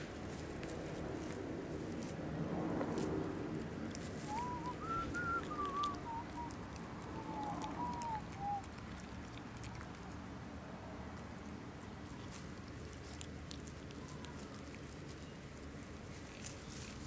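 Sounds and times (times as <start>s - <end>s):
person whistling: 4.3s - 6.5s, 7.4s - 8.6s.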